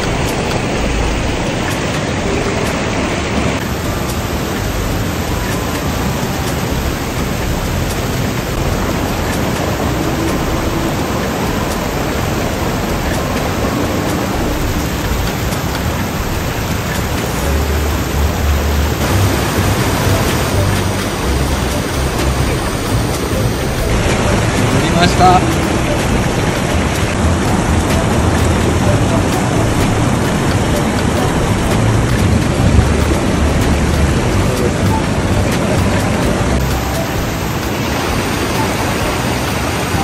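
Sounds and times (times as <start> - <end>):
low rumble: 0.0 - 40.0
stream rushing over rocks: 0.0 - 40.0.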